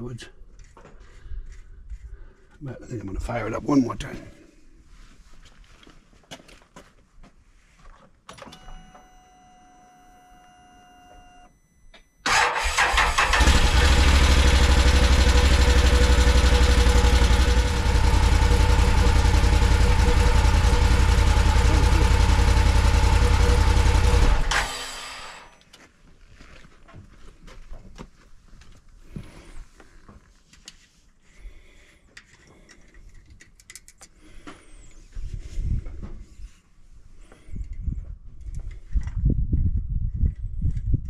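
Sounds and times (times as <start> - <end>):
engine idling: 12.3 - 25.5
starter cranking: 12.3 - 25.5.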